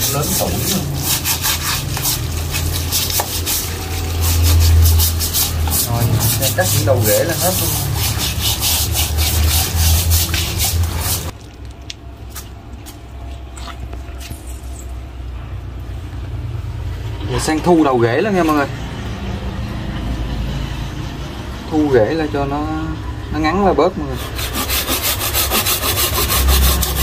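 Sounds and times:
hand scrubbing bark: 0.0s - 11.4s, 24.0s - 27.0s
running hose water: 0.0s - 11.4s, 24.3s - 27.0s.

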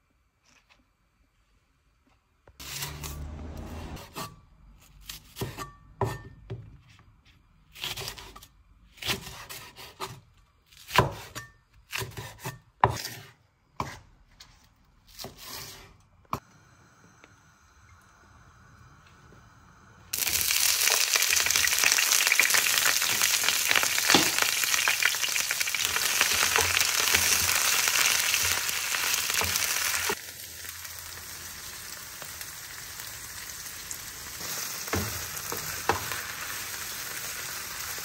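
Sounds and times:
cleaver scraping board: 2.6s - 4.4s, 12.0s - 16.0s.

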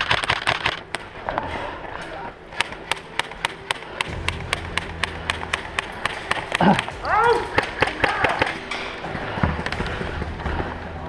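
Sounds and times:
airsoft rifles firing: 0.0s - 1.4s, 2.5s - 10.2s.

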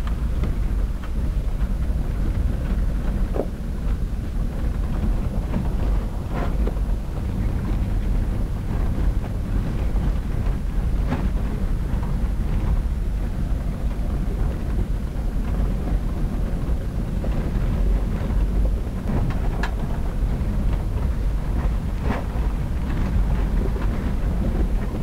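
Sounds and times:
vehicle engine rumble: 0.0s - 25.0s.

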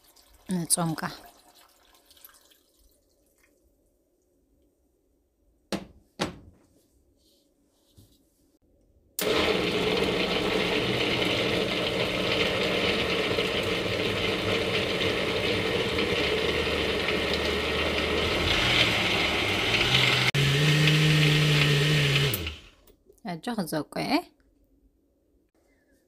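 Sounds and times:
blender blending fruit: 9.2s - 22.9s.

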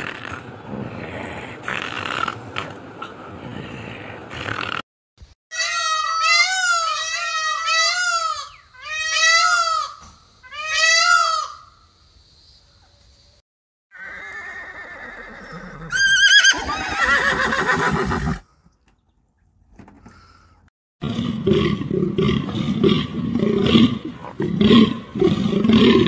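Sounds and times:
zebra whinnying: 14.0s - 18.4s.

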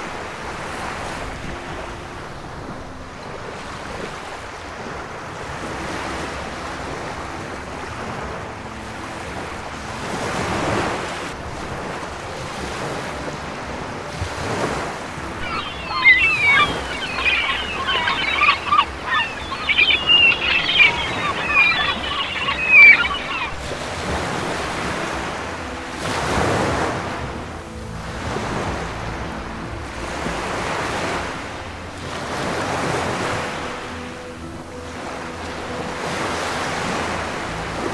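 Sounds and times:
high squeaky chattering calls: 15.4s - 23.6s.

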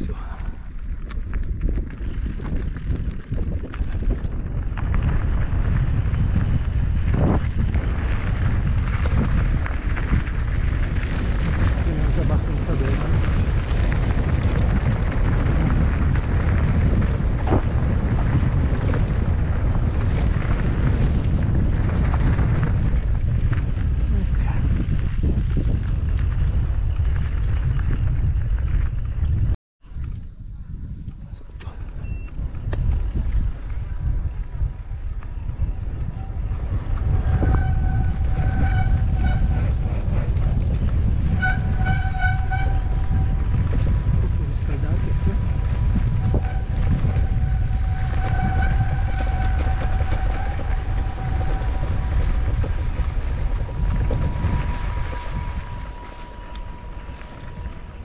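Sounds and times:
bike clicks and rattles: 0.0s - 58.0s
wind rumbling on microphone: 0.0s - 58.0s
bike brakes squealing: 46.2s - 58.0s.

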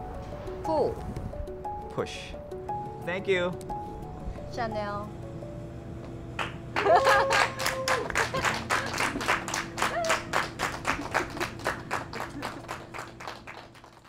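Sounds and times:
people clapping: 6.4s - 14.0s.

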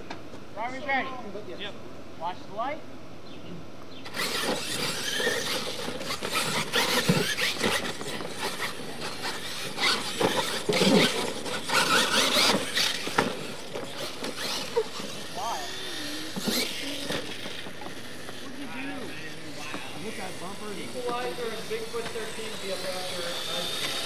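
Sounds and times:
electric motors whining: 4.0s - 24.0s
tyres scrabbling on dirt: 4.1s - 24.0s.

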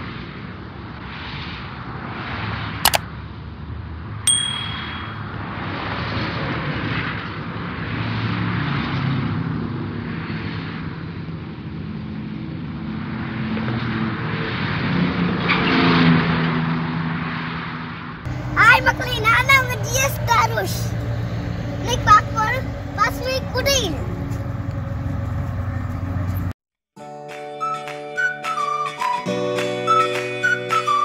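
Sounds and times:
vehicle road and engine noise: 0.0s - 26.6s
high ringing ding: 4.3s - 5.4s.

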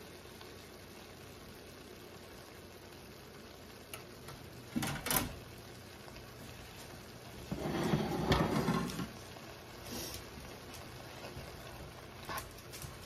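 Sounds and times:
tray clattering on counter: 7.5s - 9.2s.

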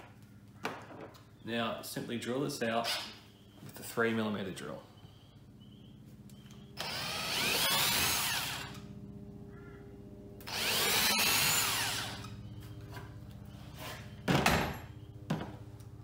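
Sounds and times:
cordless drill drilling plastic: 6.8s - 8.8s.

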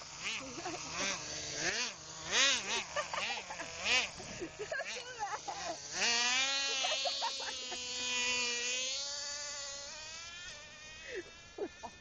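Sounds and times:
toy car motor whine: 0.0s - 12.0s.

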